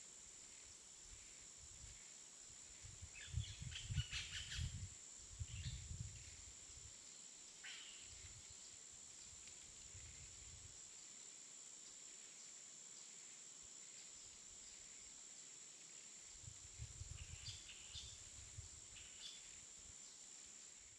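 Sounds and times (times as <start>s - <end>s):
insect drone: 0.0s - 20.9s
low rumbling wind gusts: 2.9s - 6.5s, 16.4s - 18.8s.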